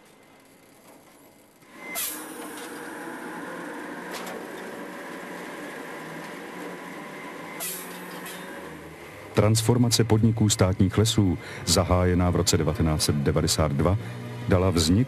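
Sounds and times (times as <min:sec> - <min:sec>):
log debarking machine running: 0:00.0 - 0:15.0.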